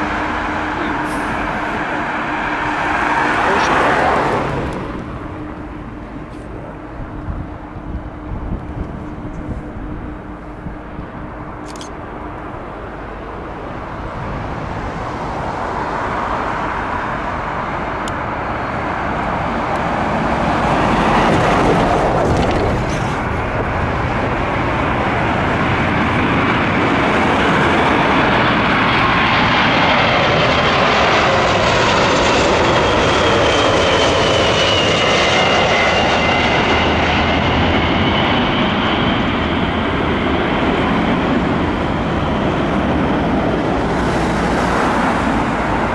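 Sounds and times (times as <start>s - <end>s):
high engine whine: 0.0s - 45.9s
jet airliner noise overhead: 0.0s - 45.9s.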